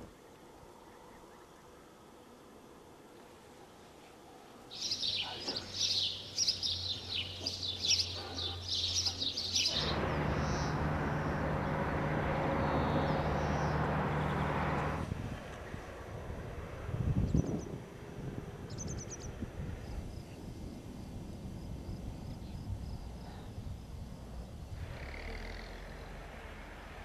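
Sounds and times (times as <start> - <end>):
small birds chirping: 4.7 - 15.0, 18.7 - 20.6.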